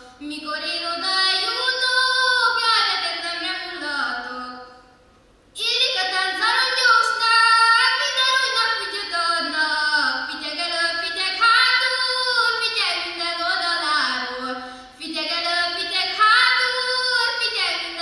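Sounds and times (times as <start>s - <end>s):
woman singing unaccompanied: 0.0s - 4.8s, 5.6s - 18.0s
singer breathing: 14.6s - 15.0s.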